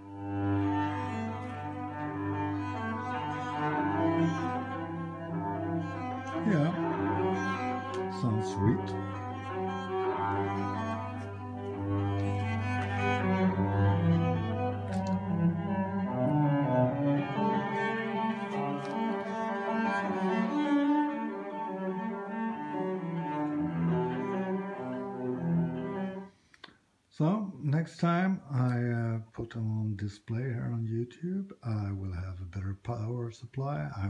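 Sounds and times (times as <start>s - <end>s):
low bowed strings music: 0.0s - 26.3s.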